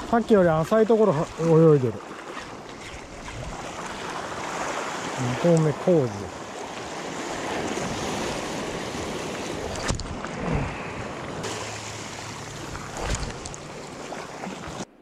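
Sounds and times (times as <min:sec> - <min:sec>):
waves washing against rocks: 0:03.0 - 0:14.9.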